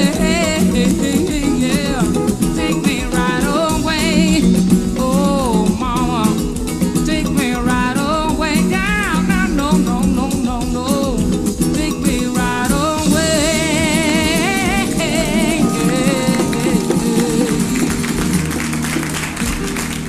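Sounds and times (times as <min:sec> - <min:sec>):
man singing with vibrato: 0:00.0 - 0:18.6
acoustic guitar: 0:00.0 - 0:20.0
backing band with drums: 0:09.4 - 0:20.0.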